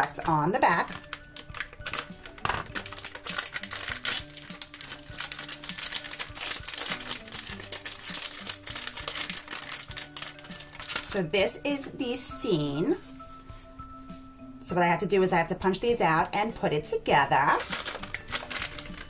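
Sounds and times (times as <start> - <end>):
scissors cutting foil bag: 0.0 - 11.2, 17.5 - 19.0
soft background music: 0.0 - 19.0
foil bag crinkling: 0.6 - 11.2, 17.6 - 19.0.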